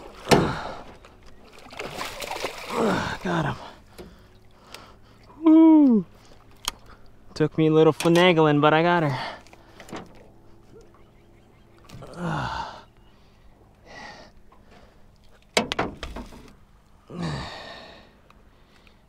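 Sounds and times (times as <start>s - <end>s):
man sighing heavily: 0.3s - 0.9s, 2.7s - 6.2s, 11.9s - 15.0s, 17.0s - 18.2s.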